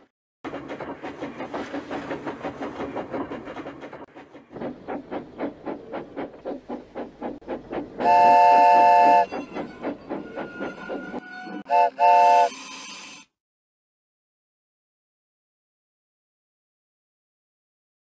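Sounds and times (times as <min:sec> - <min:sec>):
steam locomotive chuffing: 0:00.5 - 0:13.1
steam whistle: 0:08.0 - 0:09.4, 0:11.6 - 0:13.2
steam hissing: 0:11.7 - 0:13.3.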